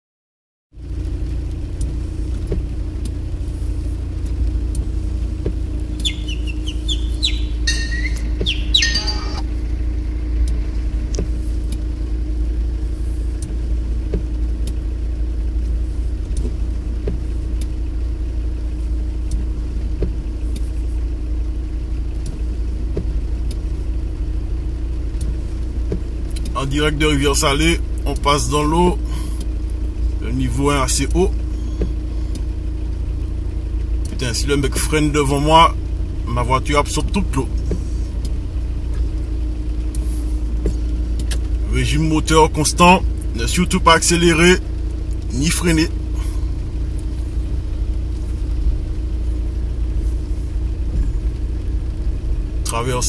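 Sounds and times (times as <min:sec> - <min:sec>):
car driving through water: 0:00.8 - 0:53.0
faint ticks: 0:01.3 - 0:03.3, 0:04.1 - 0:07.4, 0:10.4 - 0:11.9, 0:13.3 - 0:14.8, 0:15.6 - 0:17.8, 0:19.2 - 0:20.9, 0:22.1 - 0:23.7, 0:25.1 - 0:26.6, 0:31.8 - 0:32.5
high chirping: 0:05.9 - 0:09.6.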